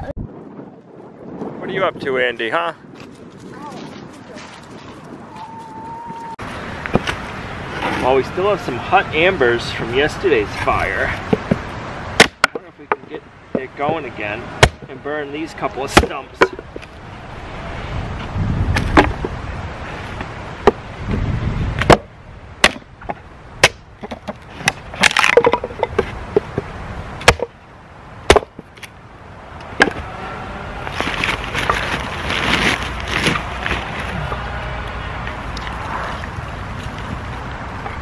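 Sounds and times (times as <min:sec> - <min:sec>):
hatchet splitting wood: 0:12.2 - 0:13.6, 0:14.6 - 0:14.9, 0:15.9 - 0:16.6, 0:21.8 - 0:26.6, 0:27.2 - 0:27.5, 0:28.3 - 0:28.9
clatter of sticks being handled: 0:24.0 - 0:26.7.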